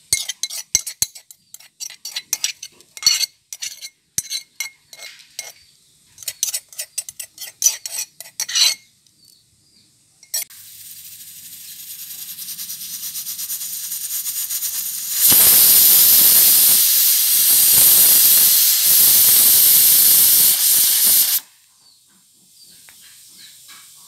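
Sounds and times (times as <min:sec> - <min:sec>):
pressure cooker steam hissing: 0:10.5 - 0:21.5
loud steam blast: 0:10.6 - 0:21.5.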